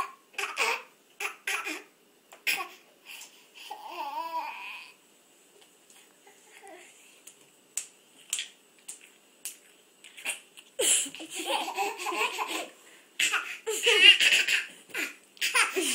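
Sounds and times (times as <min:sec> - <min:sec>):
baby giggling: 0:10.3 - 0:15.9.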